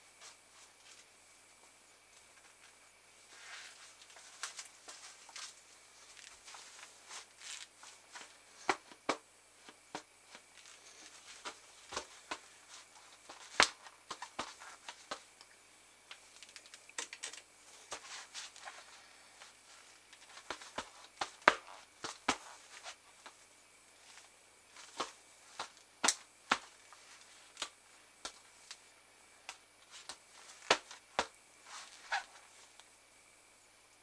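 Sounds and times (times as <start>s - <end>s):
gloves tapping and rubbing ball: 11.0s - 15.2s, 20.1s - 22.9s, 27.6s - 28.8s
glove slapping ball: 13.5s - 14.2s.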